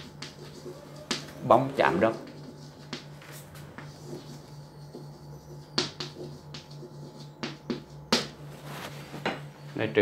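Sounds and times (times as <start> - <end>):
chalk writing on a chalkboard: 0.0 - 9.0.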